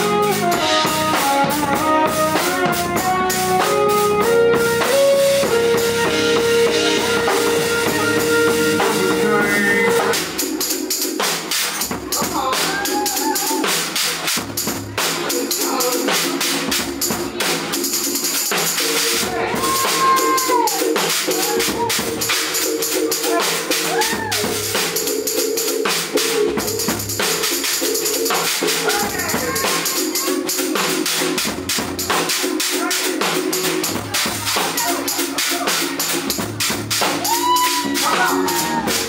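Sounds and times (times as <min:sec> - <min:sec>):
sliding arching pitches: 0:00.0 - 0:10.5
held pitched notes: 0:00.0 - 0:10.8
cymbals: 0:00.0 - 0:39.0
drum kit played hard: 0:00.0 - 0:39.0.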